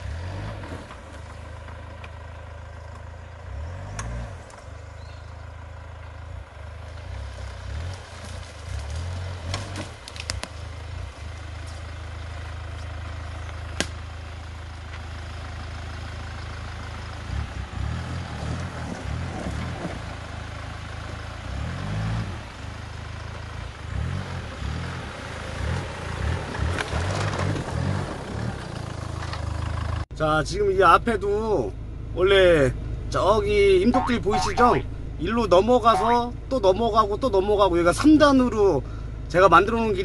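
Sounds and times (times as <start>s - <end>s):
suv engine revving: 0.0s - 1.5s, 3.4s - 13.0s, 16.8s - 30.0s.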